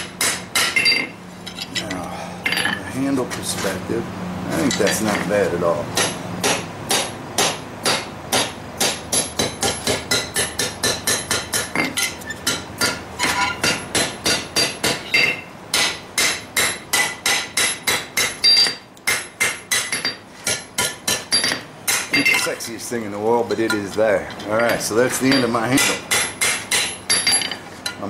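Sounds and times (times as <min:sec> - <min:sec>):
hammer striking steel on anvil: 0:00.0 - 0:01.6, 0:06.0 - 0:22.5, 0:24.6 - 0:28.0.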